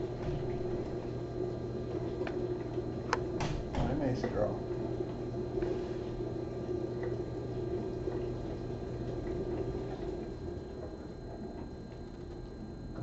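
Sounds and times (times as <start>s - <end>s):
low hum: 0.0s - 3.8s.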